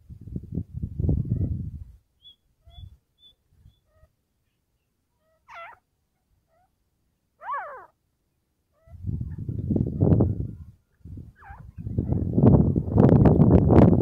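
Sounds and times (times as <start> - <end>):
francolin calling: 2.2 - 4.1, 5.2 - 5.8, 7.4 - 8.0.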